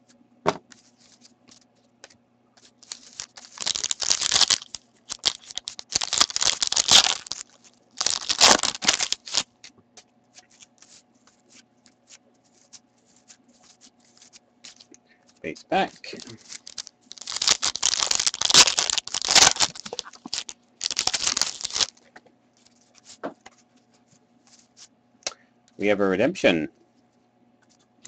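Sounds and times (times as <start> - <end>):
foil wrapper tearing and crinkling: 2.6 - 9.7, 10.4 - 14.9, 16.0 - 22.0.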